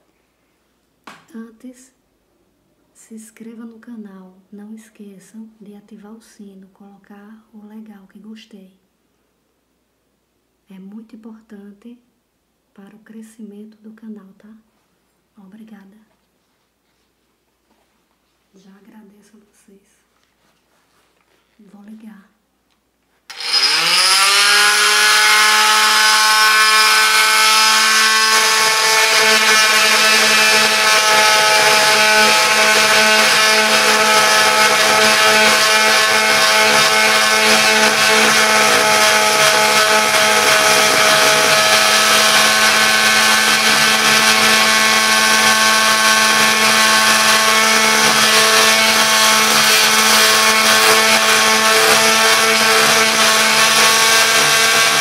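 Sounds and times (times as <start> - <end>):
multi-tool motor whine: 23.3 - 55.0
saw blade cutting wood: 23.3 - 55.0.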